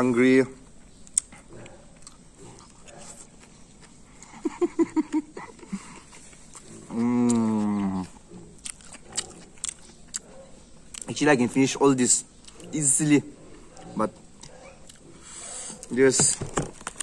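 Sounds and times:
chewing clicks: 0.8s - 4.4s, 6.3s - 11.3s, 12.3s - 12.8s, 13.7s - 15.1s
man humming with mouth closed: 6.7s - 8.2s.

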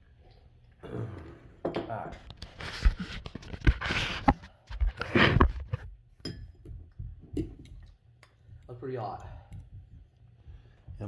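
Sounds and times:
rubbing on microphone: 2.2s - 5.9s.

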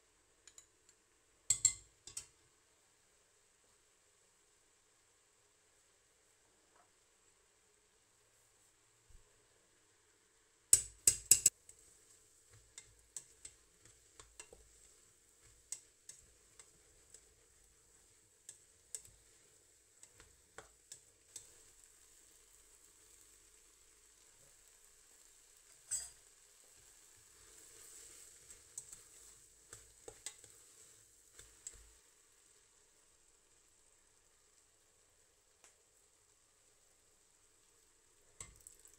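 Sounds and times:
spoon knocking metal pot: 1.5s - 2.3s, 10.8s - 11.5s, 25.9s - 26.2s
spoon stirring thick salsa: 10.8s - 21.8s, 27.7s - 32.0s.

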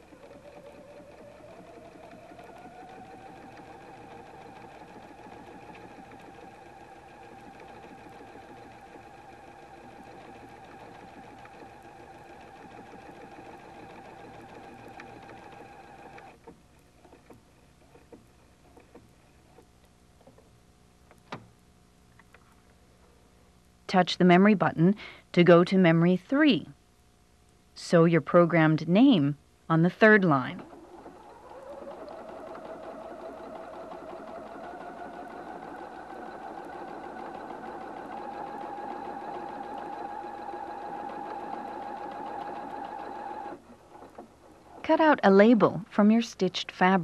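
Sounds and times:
sewing machine motor whine: 0.0s - 16.5s, 30.0s - 44.9s.

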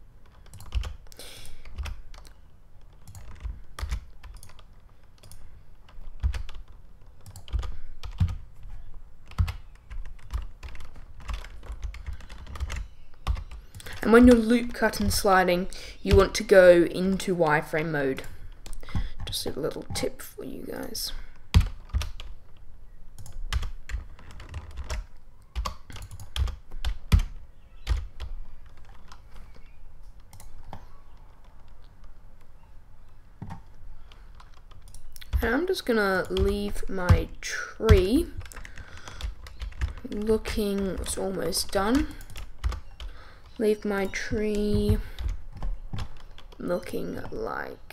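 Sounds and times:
keyboard and mouse clicks: 0.2s - 15.2s, 21.6s - 35.6s.

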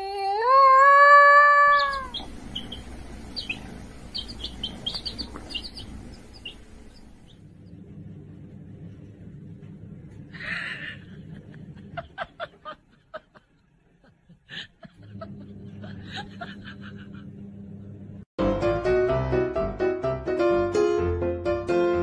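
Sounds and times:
steady low hum: 1.7s - 18.3s
person snickering: 10.4s - 17.3s.

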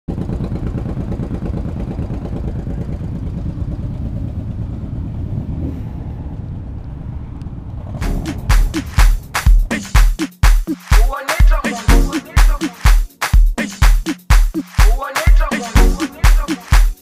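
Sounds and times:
motorcycle engine rumbling: 0.1s - 9.9s
dance music with heavy kick drum: 8.0s - 17.0s.

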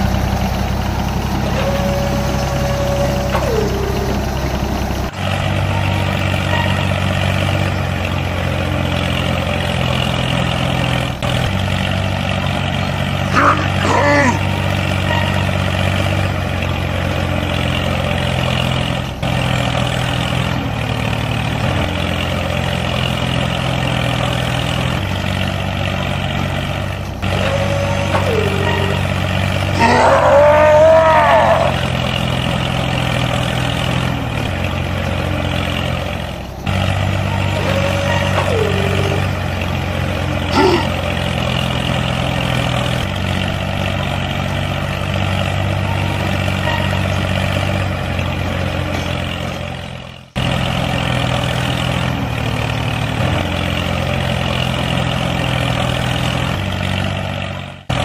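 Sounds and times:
wavering cry: 27.3s - 31.9s, 37.5s - 39.4s, 40.5s - 41.0s.

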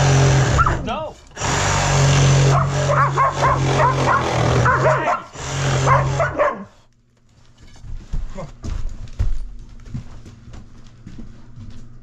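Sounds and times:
power saw cutting wood: 0.0s - 6.4s
dog yelping: 0.6s - 0.8s, 2.4s - 6.8s.

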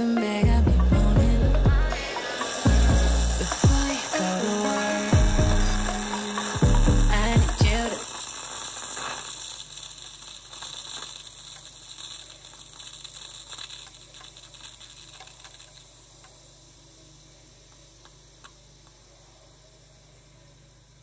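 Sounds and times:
coffee machine hiss: 0.0s - 21.0s
faint crackles: 2.0s - 20.5s
small ticks: 7.6s - 16.4s.

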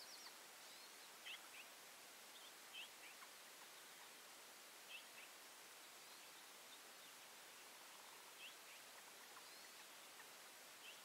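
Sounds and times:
faint open air hiss: 0.0s - 11.0s.

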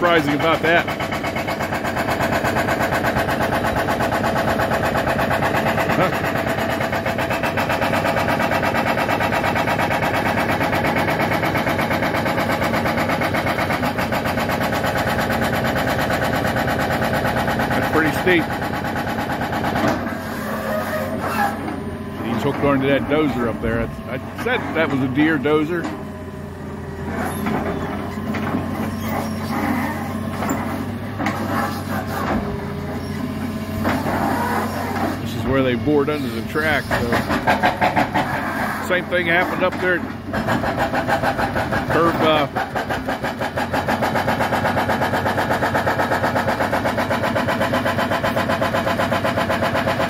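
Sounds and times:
diesel engine running: 0.0s - 50.0s
hydraulic rock hammer pounding: 0.0s - 50.0s.

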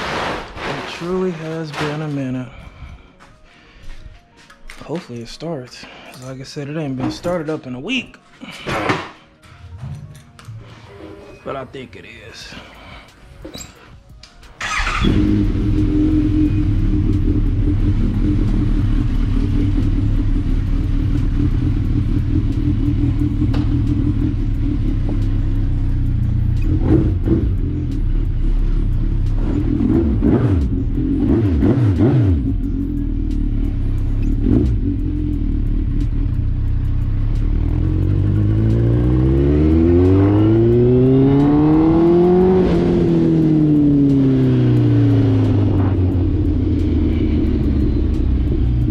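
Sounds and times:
motorcycle engine starting and revving: 14.6s - 48.9s.

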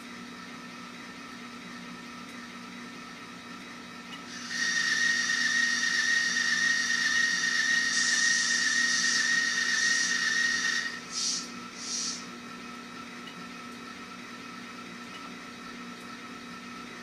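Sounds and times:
high held tone: 4.3s - 12.2s
loud steady hissing: 4.3s - 12.3s
short hisses: 4.3s - 12.3s.

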